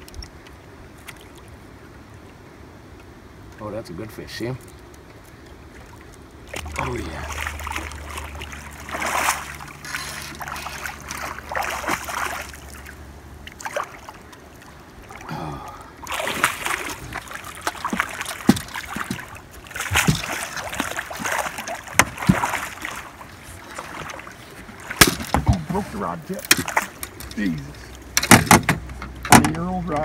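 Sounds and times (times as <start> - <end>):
low steady hum: 0.0 - 30.0
fish thrashing and splashing: 4.7 - 28.6
sharp knocks: 28.2 - 29.6.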